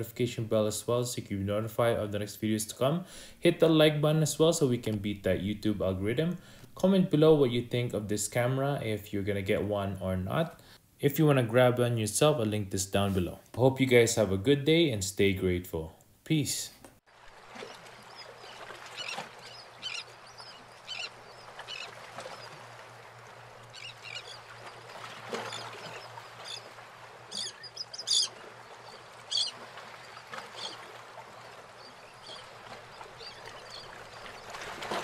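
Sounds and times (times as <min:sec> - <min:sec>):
short chirping calls: 0:27.3 - 0:28.4, 0:29.3 - 0:29.6.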